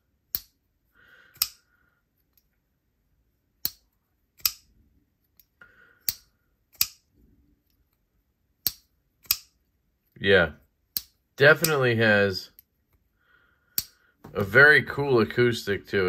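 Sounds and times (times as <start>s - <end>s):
folding knife metallic clicks: 0.3s - 0.6s, 1.4s - 1.6s, 3.6s - 3.8s, 4.4s - 4.7s, 5.3s - 7.1s, 8.6s - 9.6s, 10.9s - 11.8s.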